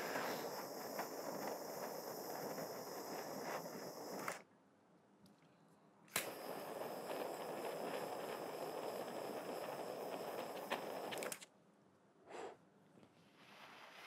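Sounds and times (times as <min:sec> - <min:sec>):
jet flame hissing: 0:00.0 - 0:04.4, 0:06.1 - 0:11.4
torch lighter click: 0:00.1 - 0:04.4, 0:06.1 - 0:11.5.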